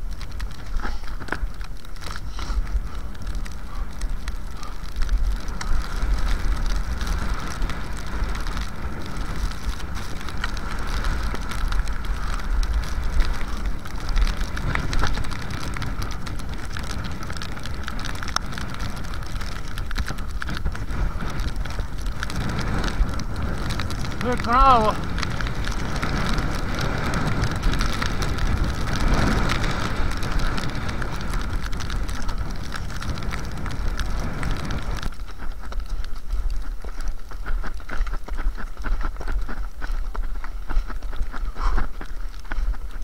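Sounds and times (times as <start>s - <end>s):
wind rumble on microphone: 0.0s - 43.0s
skis hissing and scraping on snow: 2.1s - 3.8s, 5.2s - 35.8s.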